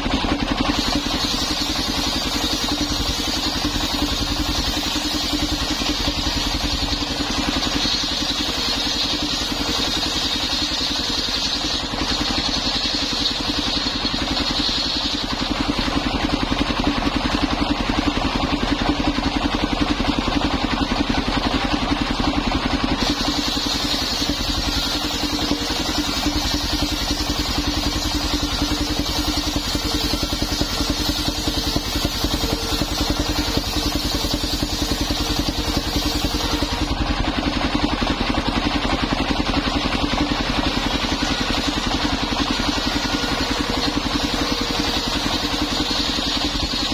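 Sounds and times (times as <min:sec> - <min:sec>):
circular saw cutting wood: 0:00.0 - 0:46.9
stationary engine running: 0:00.0 - 0:46.9
high whine: 0:23.0 - 0:37.2, 0:39.5 - 0:46.9.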